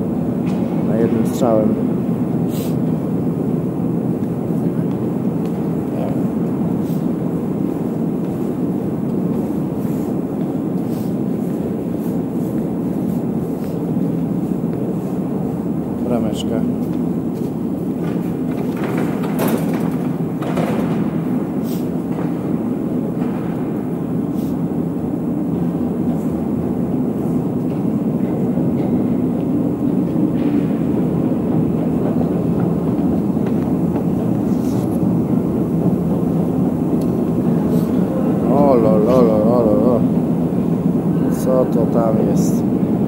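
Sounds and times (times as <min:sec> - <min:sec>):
escalator machinery: 0:00.0 - 0:43.0
trains running: 0:00.0 - 0:43.0.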